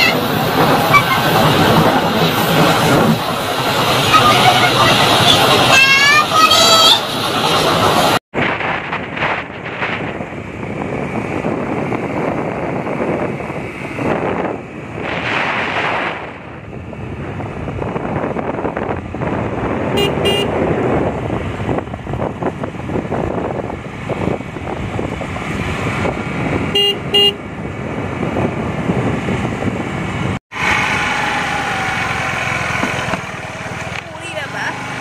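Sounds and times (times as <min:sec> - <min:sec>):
road noise: 0:00.0 - 0:35.0
wind buffeting microphone: 0:00.0 - 0:35.0
vehicle horn double beep: 0:20.0 - 0:20.6, 0:26.8 - 0:27.4.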